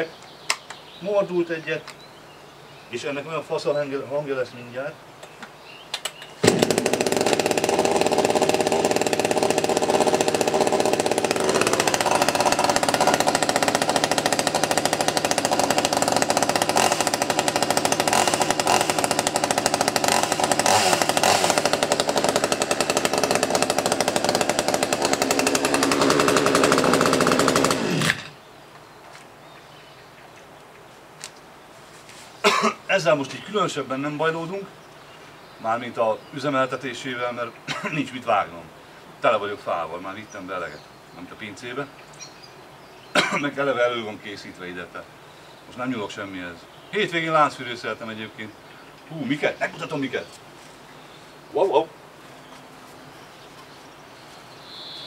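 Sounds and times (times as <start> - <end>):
chainsaw starting and running: 6.4 - 28.4, 43.2 - 43.4.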